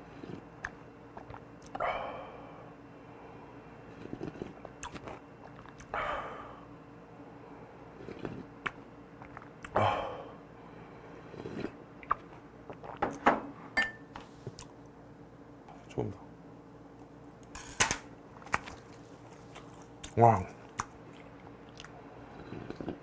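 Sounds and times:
lip smacks and mouth clicks: 0.6s - 1.8s, 4.2s - 5.9s, 8.2s - 9.8s, 12.0s - 13.0s, 18.5s - 22.0s.

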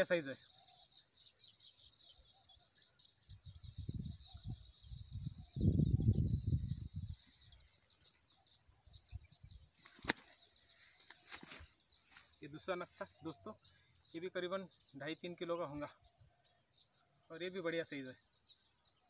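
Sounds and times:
birds chirping: 0.0s - 19.0s
sharp click: 9.8s - 10.3s.

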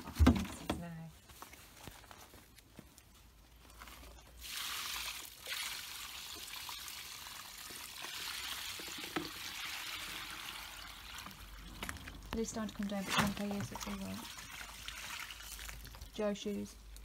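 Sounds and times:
water pouring onto ground: 4.4s - 16.4s.

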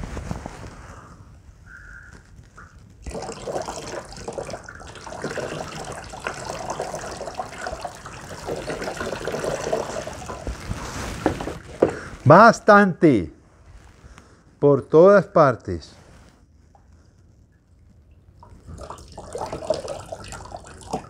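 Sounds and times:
water pouring and splashing into tub: 3.0s - 12.3s, 18.1s - 21.0s.

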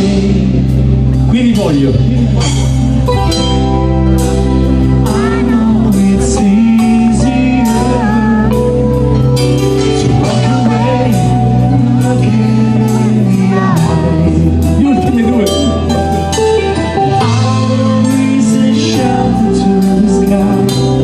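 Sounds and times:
lead vocals: 0.0s - 21.0s
rock band playing: 0.0s - 21.0s.

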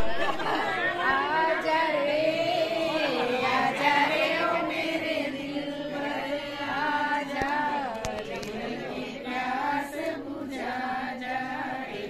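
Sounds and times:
women singing together: 0.0s - 12.0s.

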